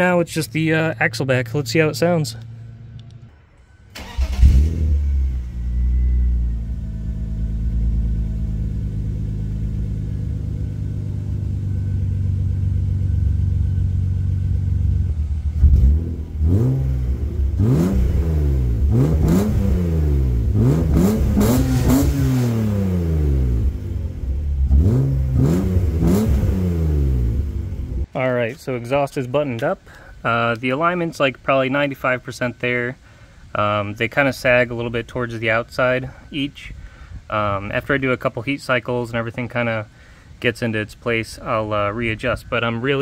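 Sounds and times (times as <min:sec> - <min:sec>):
car engine starting and idling: 0:00.0 - 0:28.2
engine revving in throttle blips: 0:04.0 - 0:28.1.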